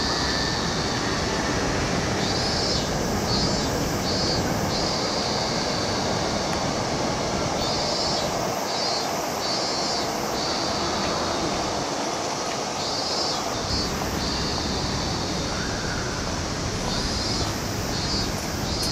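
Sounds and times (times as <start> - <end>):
high-pitched buzzing call: 0.0 - 6.8, 7.6 - 11.9
city traffic rumble: 0.0 - 18.9
trains: 0.0 - 18.9.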